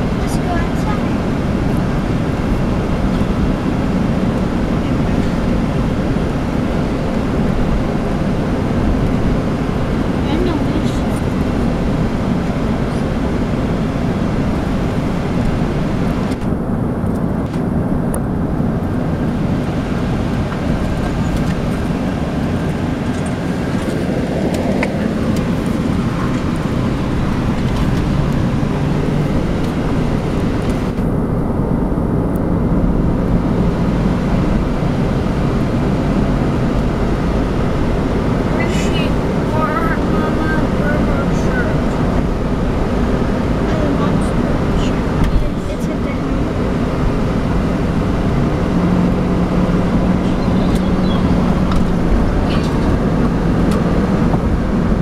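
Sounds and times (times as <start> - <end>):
car engine hum: 0.0 - 55.0.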